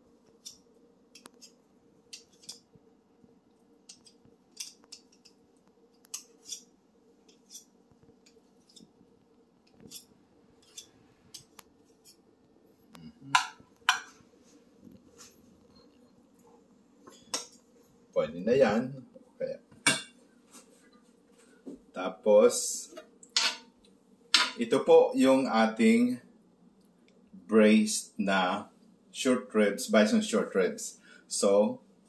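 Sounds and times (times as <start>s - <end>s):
metal spoon scraping glassware: 9.9s - 10.9s.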